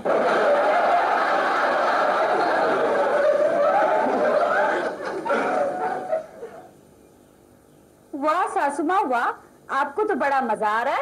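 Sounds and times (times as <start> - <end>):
audience laughter: 0.0 - 6.7.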